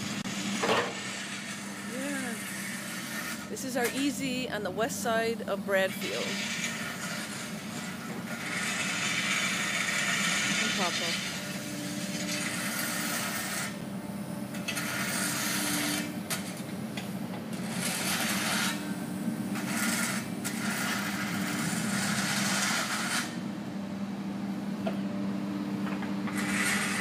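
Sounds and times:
steady low hum: 1.2 - 22.1.

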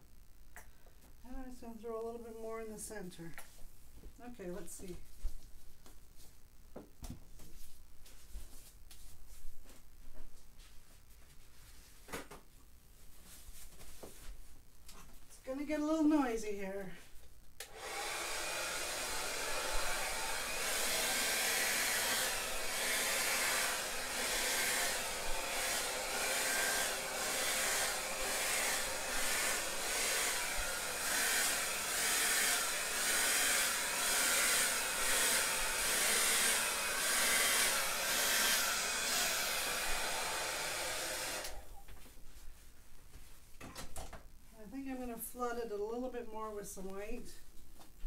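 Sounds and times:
hair dryer blowing: 17.6 - 41.7.

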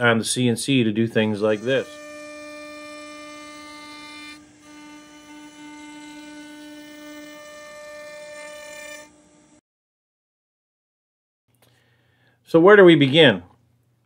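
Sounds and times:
router spindle whining: 1.1 - 9.6.

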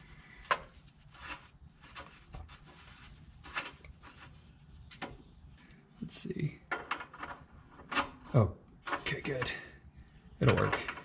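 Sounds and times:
cable brushing: 0.5 - 4.9.

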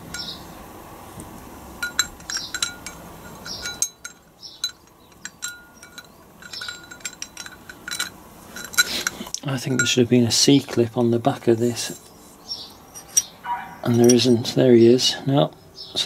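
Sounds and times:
low steady hum: 0.0 - 16.0
metal parts clinking: 1.8 - 10.1, 12.9 - 14.4.

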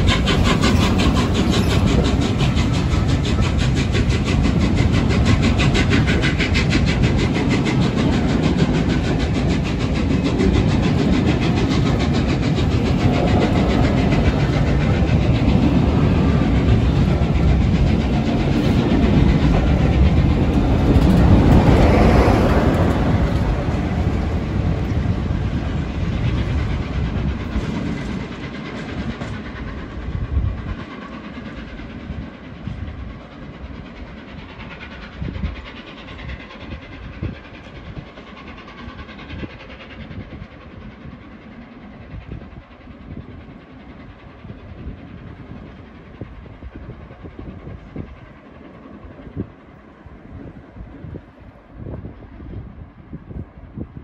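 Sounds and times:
wheels clacking over rail joints: 0.0 - 29.9
diesel locomotive passing: 0.0 - 54.0
train wheels rumbling and clattering: 0.0 - 54.0.

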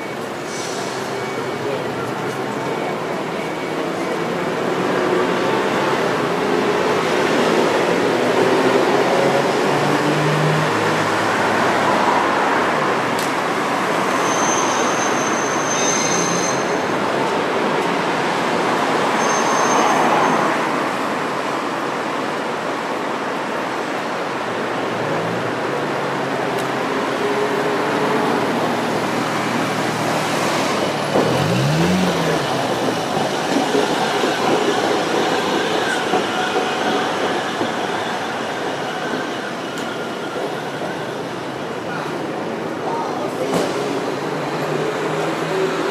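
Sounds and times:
road traffic: 0.0 - 45.9
tram wheels squealing on rails: 13.6 - 17.4, 18.4 - 20.9, 27.1 - 44.6
trams running: 23.4 - 45.9.

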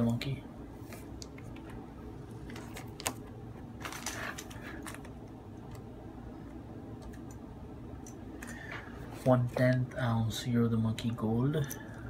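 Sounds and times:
plastic bag crinkling: 3.8 - 5.1.

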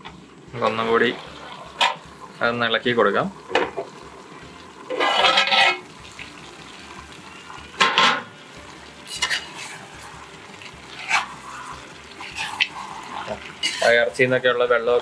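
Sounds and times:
meat sizzling: 0.0 - 15.0
spoon scraping metal pot: 4.9 - 5.9, 9.0 - 9.9, 10.9 - 14.1.

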